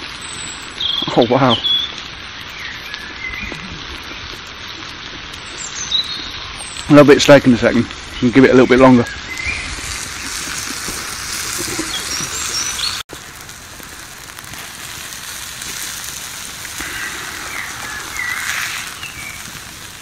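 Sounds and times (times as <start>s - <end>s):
food sizzling on hot slate: 0.0s - 20.0s
bird chirps: 5.6s - 6.5s, 11.6s - 13.0s, 16.8s - 19.5s.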